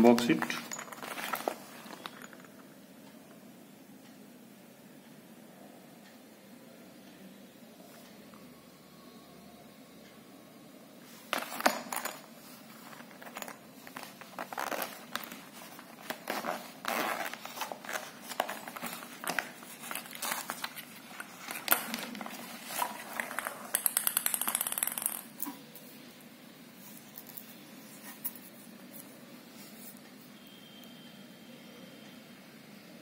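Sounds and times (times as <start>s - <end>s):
plastic wrapping crinkling: 12.8s - 23.8s
zipper pulled open: 16.1s - 18.1s.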